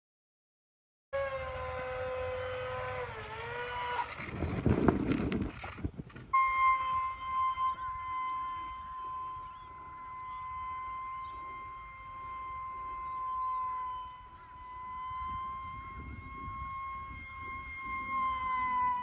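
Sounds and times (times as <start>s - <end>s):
electric fan whining: 1.2s - 19.0s
rushing noise with clicks: 3.2s - 6.3s.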